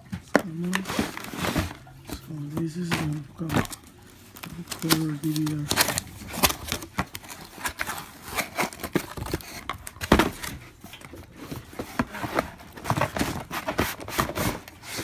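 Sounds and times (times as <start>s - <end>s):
cardboard box knocks and scrapes: 0.7s - 1.8s, 11.5s - 14.6s.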